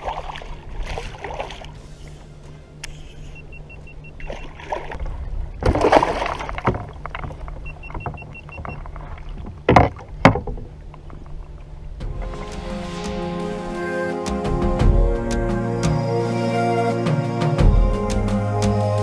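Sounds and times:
kayak splashing and sloshing: 0:00.0 - 0:14.0.

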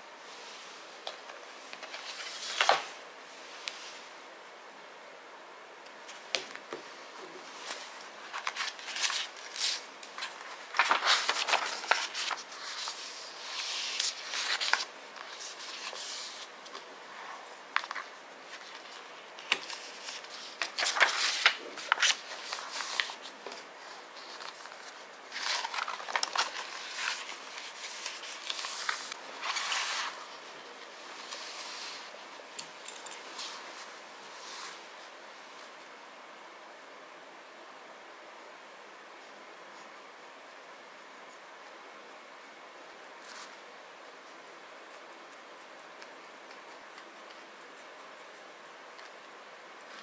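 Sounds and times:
paper pages rustling and turning: 0:01.0 - 0:03.0, 0:06.0 - 0:35.7, 0:43.2 - 0:50.0.

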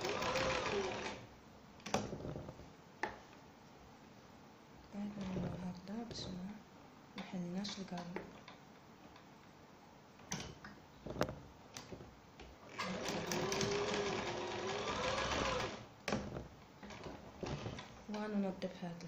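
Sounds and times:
sewing machine running: 0:00.0 - 0:01.2, 0:12.7 - 0:15.9.

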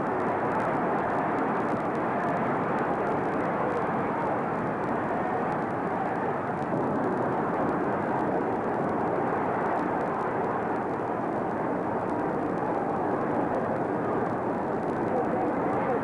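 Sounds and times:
film hiss and rumble: 0:00.0 - 0:16.0.

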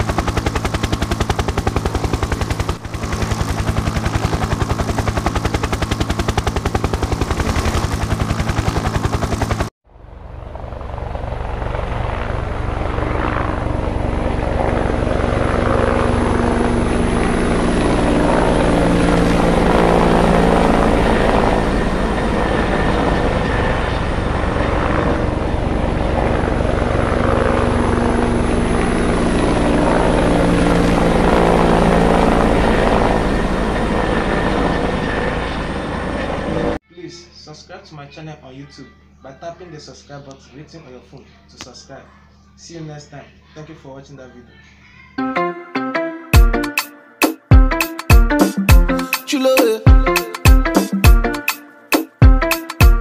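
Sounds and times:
helicopter drone: 0:00.0 - 0:36.8
helicopter rotor chop: 0:00.0 - 0:36.8.

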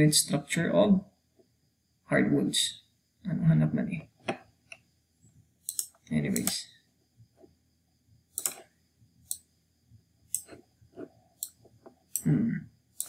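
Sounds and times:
computer mouse clicks: 0:05.6 - 0:06.6, 0:08.3 - 0:09.5, 0:10.3 - 0:12.3.

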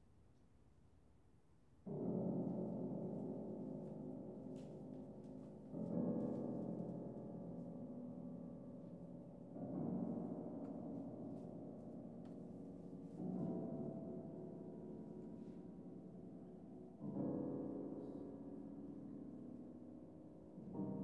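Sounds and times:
grand piano low chords: 0:01.9 - 0:21.0.

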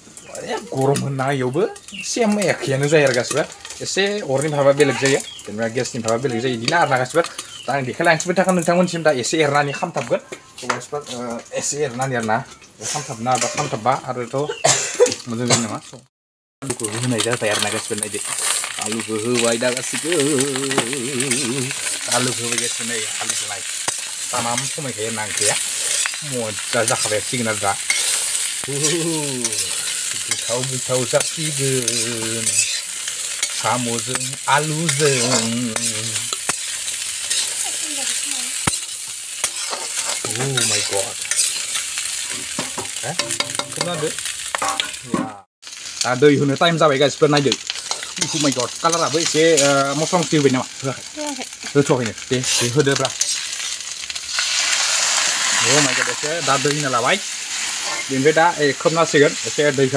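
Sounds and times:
potatoes sizzling in oil: 0:00.0 - 0:59.9
spatula scraping a pan: 0:09.7 - 0:14.0, 0:16.7 - 0:45.1, 0:47.4 - 0:50.6, 0:51.6 - 0:59.9.

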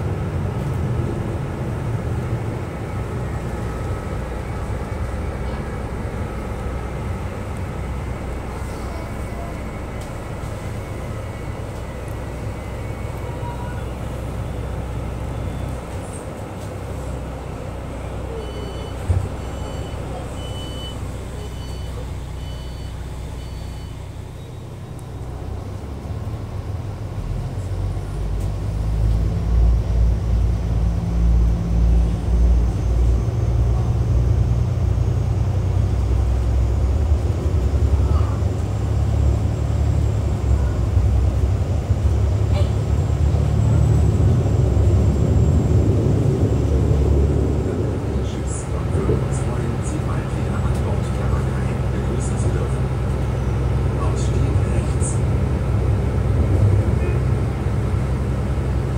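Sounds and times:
train diesel engine rumble: 0:00.0 - 0:58.9
short high warning beeps: 0:18.3 - 0:24.6.

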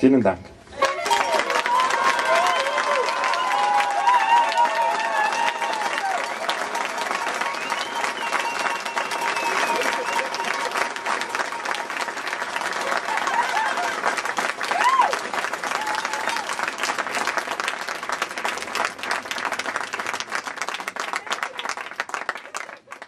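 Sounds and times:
crowd clapping: 0:00.8 - 0:23.0.

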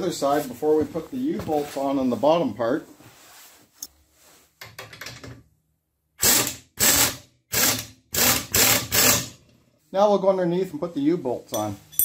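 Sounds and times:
pneumatic impact wrench hammering: 0:06.2 - 0:09.4.

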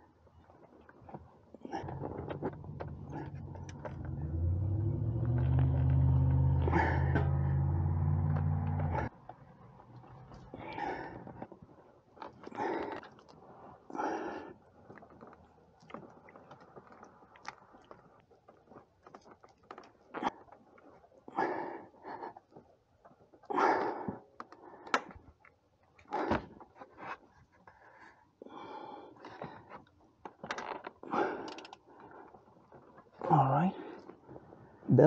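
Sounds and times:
person grunting and breathing: 0:06.5 - 0:07.8, 0:10.5 - 0:11.4.

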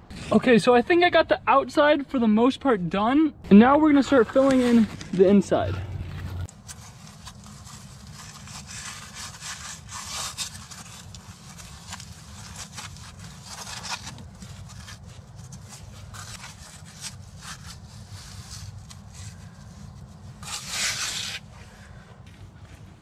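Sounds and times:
steady low rumble: 0:03.3 - 0:06.5
hand scraping wet mud on stone: 0:04.1 - 0:21.5.

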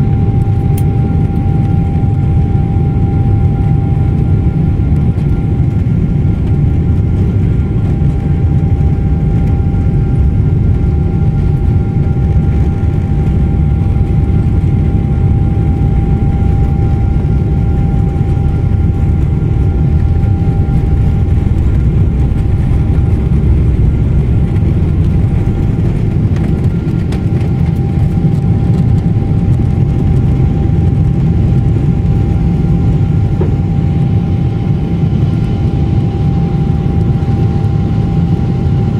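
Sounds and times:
jet engines rumbling: 0:00.0 - 0:38.9
thin steady whine: 0:00.0 - 0:38.9.

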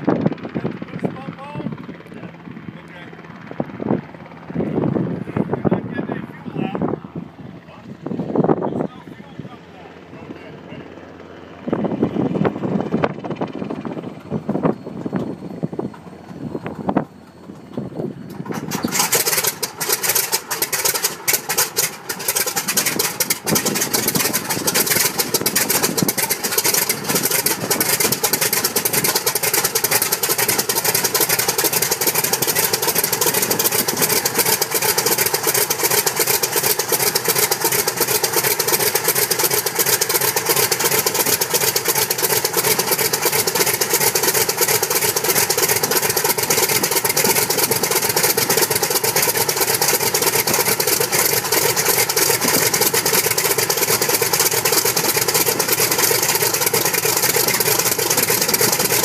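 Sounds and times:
radial aircraft engine running: 0:00.0 - 0:59.0
engine pops: 0:13.0 - 0:59.0.

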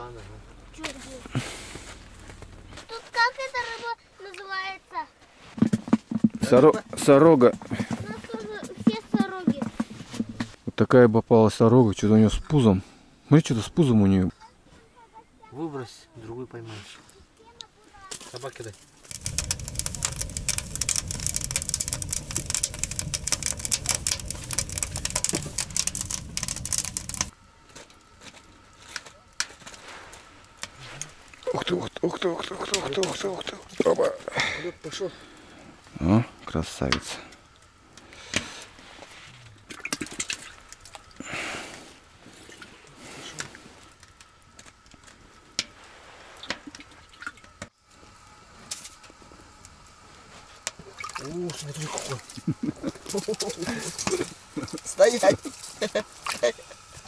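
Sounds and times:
wood fire crackling in stove: 0:00.0 - 0:04.7, 0:05.5 - 0:10.9, 0:16.5 - 0:57.0
low rumble: 0:00.3 - 0:02.8, 0:19.1 - 0:27.5
faint high hum: 0:10.7 - 0:57.0
small sharp clicks and knocks: 0:18.1 - 0:27.3.

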